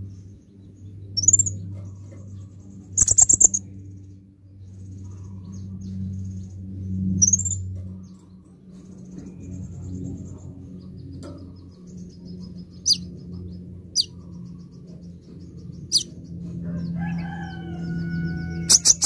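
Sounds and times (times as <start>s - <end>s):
bird twittering trills: 0.3s - 4.0s, 4.7s - 19.0s
rooster crowing: 16.6s - 19.0s.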